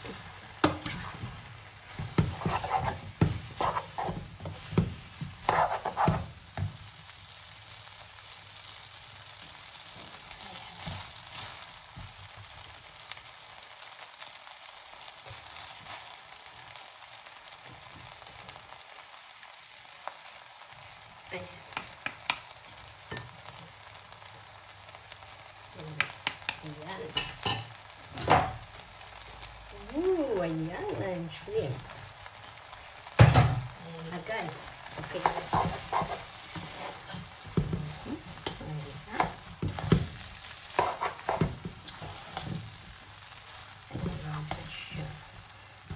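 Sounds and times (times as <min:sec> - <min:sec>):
noodles sizzling in a pot: 0:00.0 - 0:45.9
utensils scraping a pot: 0:02.1 - 0:04.2, 0:05.4 - 0:06.3, 0:35.0 - 0:37.3, 0:40.6 - 0:42.6.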